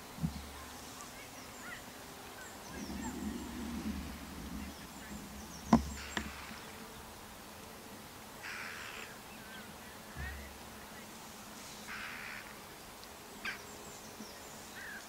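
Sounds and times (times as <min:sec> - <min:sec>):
fly buzzing: 0:00.1 - 0:09.2
faint bird chirps: 0:00.2 - 0:07.2, 0:08.4 - 0:12.7, 0:13.4 - 0:15.0.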